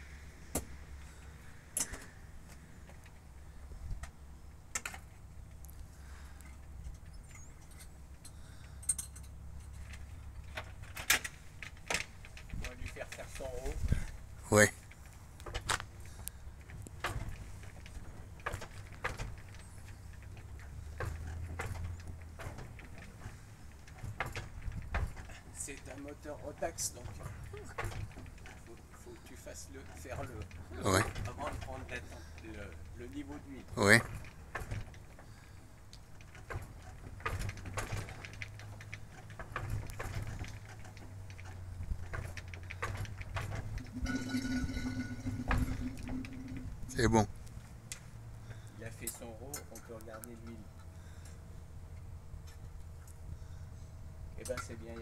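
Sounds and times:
engine clicks and knocks: 0:15.4 - 0:47.4
propeller turned by hand: 0:36.2 - 0:47.7
steady low rumble: 0:43.7 - 0:48.5.

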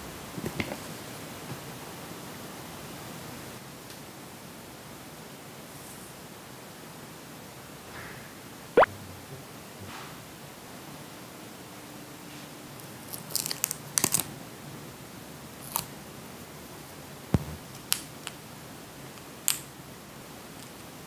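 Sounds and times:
dull knock: 0:17.4 - 0:17.6.

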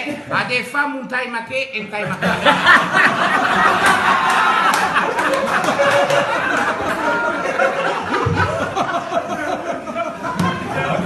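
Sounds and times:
men laughing: 0:02.1 - 0:11.0.

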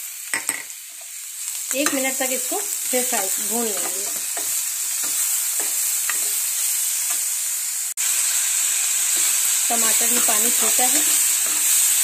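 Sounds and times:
vegetables sizzling in oil: 0:00.0 - 0:12.0
metal spatula scraping and tapping: 0:03.7 - 0:07.2, 0:10.1 - 0:11.8.

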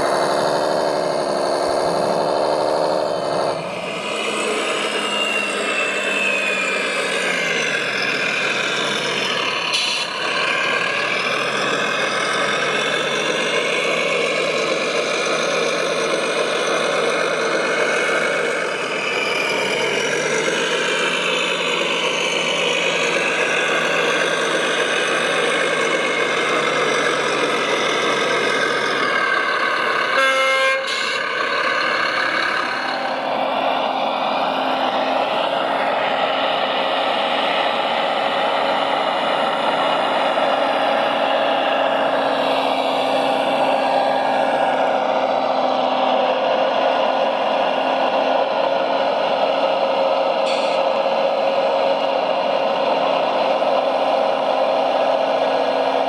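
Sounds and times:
toy truck engine running: 0:00.0 - 0:56.0
short horn toot: 0:30.2 - 0:31.2.

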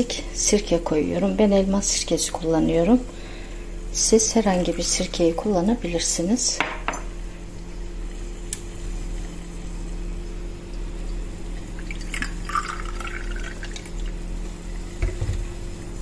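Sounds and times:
liquid trickling into a glass: 0:10.7 - 0:14.2.

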